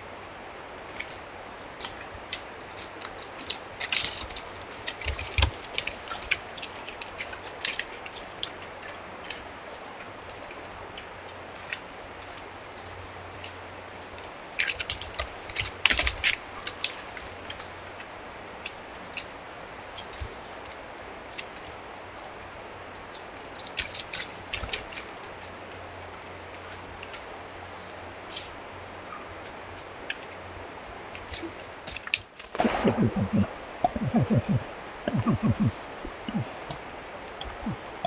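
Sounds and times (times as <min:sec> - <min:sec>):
steady hiss: 0:32.4 - 0:38.0.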